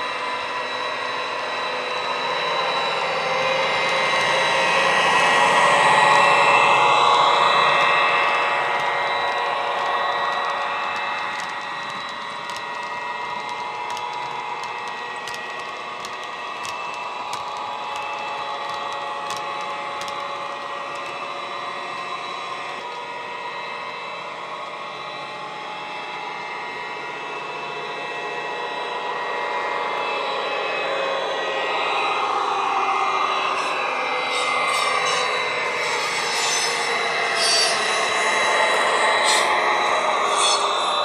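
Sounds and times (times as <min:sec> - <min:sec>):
wagon wheels clicking on track: 0:06.8 - 0:23.0.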